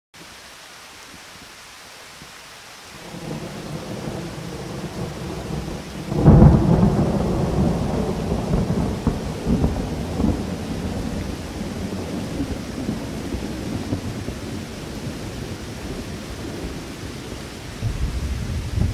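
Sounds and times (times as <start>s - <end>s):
steady hiss: 0.2s - 18.9s.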